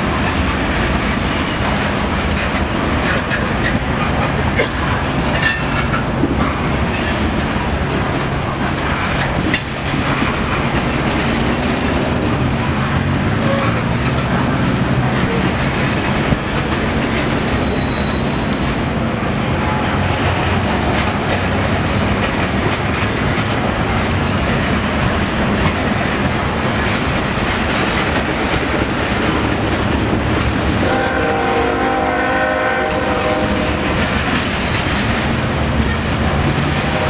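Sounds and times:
clickety-clack over rail joints: 0.0 - 37.0
train wheels rumbling: 0.0 - 37.0
high wheel squeal: 6.9 - 12.0, 17.5 - 18.7.

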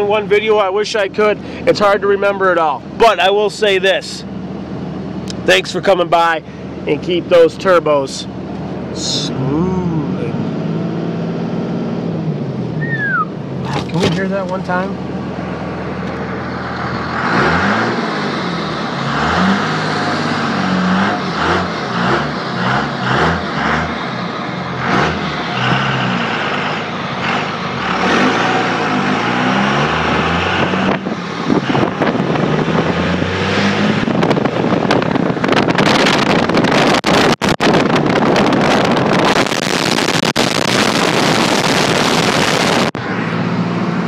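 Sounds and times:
diesel engine revving: 0.0 - 44.0
rush of engine and air noise: 0.0 - 44.0.

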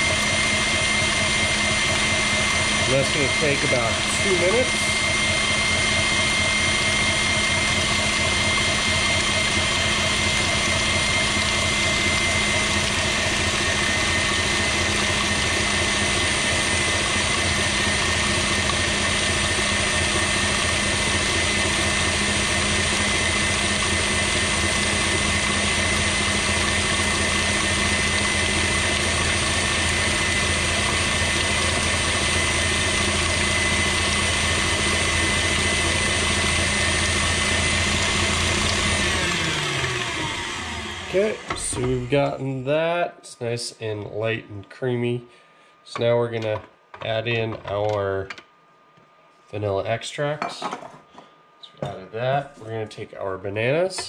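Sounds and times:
whisk beating in steel bowl: 0.0 - 40.3
stand mixer motor whine: 0.0 - 42.6, 53.8 - 54.0.

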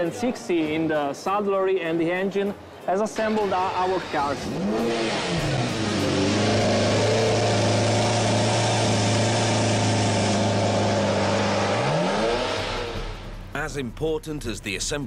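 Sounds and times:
car engine idling and revving: 3.1 - 13.6.

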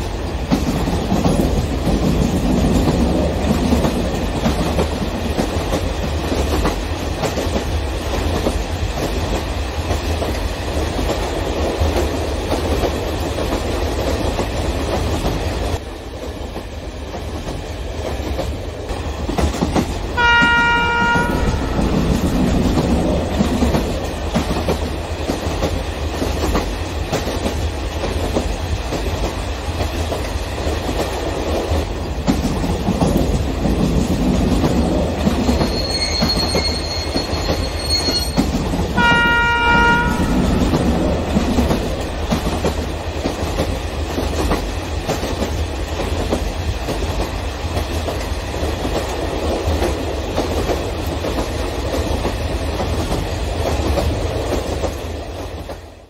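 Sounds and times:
model trains rumbling on track: 0.0 - 56.0
train horn blast: 20.2 - 22.7, 38.9 - 41.3.

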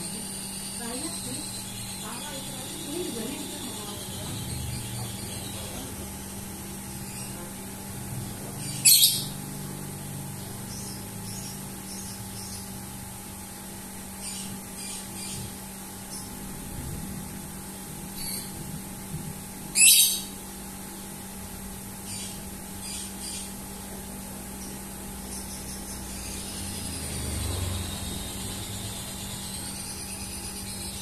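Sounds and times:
bird chirping: 0.0 - 7.5, 8.5 - 9.4, 10.4 - 12.8, 24.6 - 31.0
bird squawking: 8.6 - 9.4, 19.8 - 20.3.

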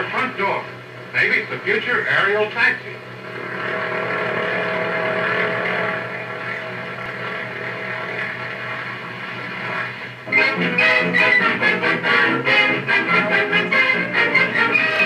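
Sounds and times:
old film soundtrack hiss: 0.0 - 15.0
propeller aircraft engine: 3.0 - 14.0.

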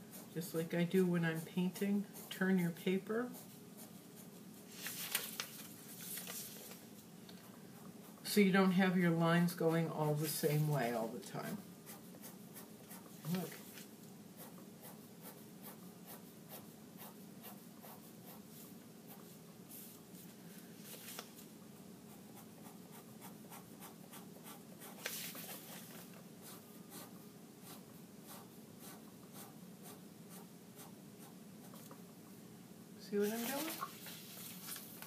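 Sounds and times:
pen scratching on paper: 0.0 - 4.4, 11.4 - 13.5, 14.3 - 19.9, 22.0 - 25.8, 26.4 - 31.9.

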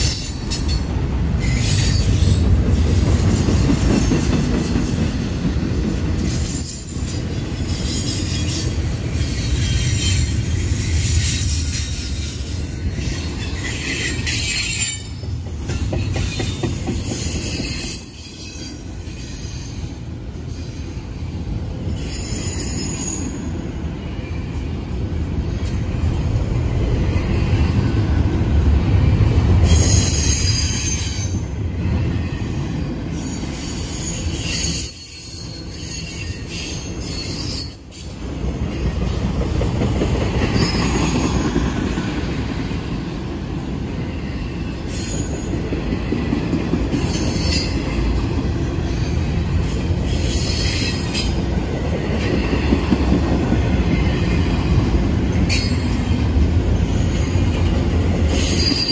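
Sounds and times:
train wheels rumbling on rail: 0.0 - 58.9
high-pitched wheel squeal: 58.3 - 58.9.

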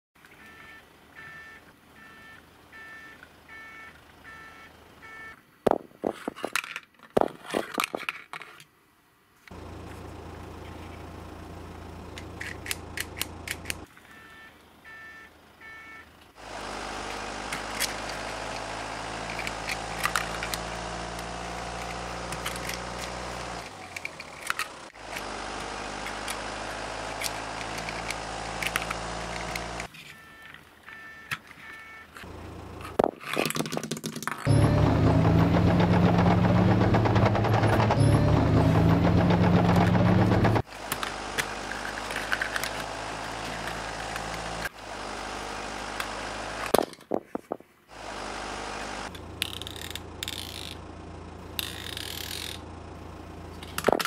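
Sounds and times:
electronic beeping: 0.4 - 5.4, 30.2 - 32.1, 34.5 - 35.6, 37.9 - 39.8
plastic toy parts clattering: 6.0 - 8.7, 12.1 - 13.9, 17.5 - 26.5, 27.1 - 30.6, 31.3 - 34.5, 40.7 - 44.5, 46.6 - 47.7, 49.1 - 50.8, 51.6 - 52.6, 53.6 - 54.0
engine-like drone: 9.5 - 30.5, 34.5 - 46.8, 47.9 - 54.0.

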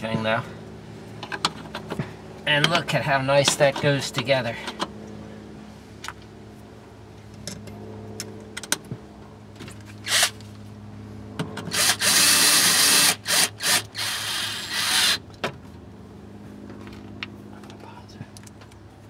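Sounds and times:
cordless drill driving a screw: 10.0 - 10.4, 11.7 - 15.2.

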